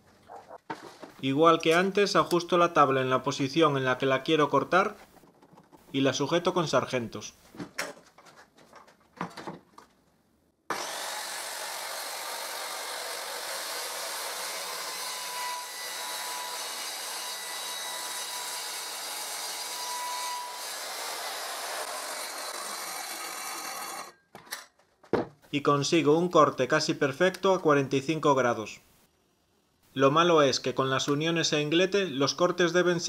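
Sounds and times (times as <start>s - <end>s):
circular saw cutting wood: 10.7s - 24.2s.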